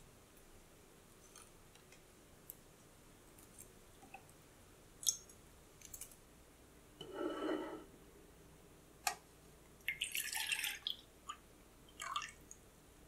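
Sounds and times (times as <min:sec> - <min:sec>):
small wet clicks: 0:05.0 - 0:06.2.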